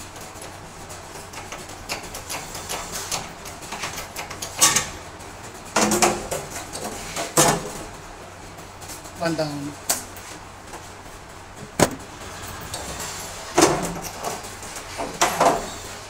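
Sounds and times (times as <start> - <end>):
metal knocks and clanks: 11.6 - 12.1.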